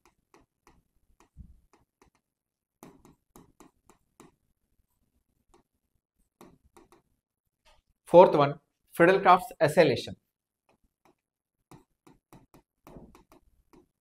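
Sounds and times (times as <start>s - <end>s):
marker tapping on writing board: 0.0s - 4.4s, 6.4s - 7.1s, 10.6s - 14.0s.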